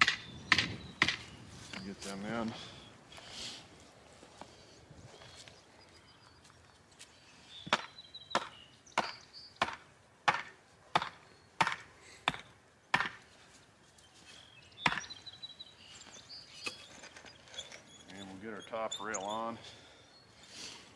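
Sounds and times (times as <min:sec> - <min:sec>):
hammer striking wooden stake: 0:00.0 - 0:01.3, 0:07.7 - 0:13.3, 0:14.8 - 0:15.1.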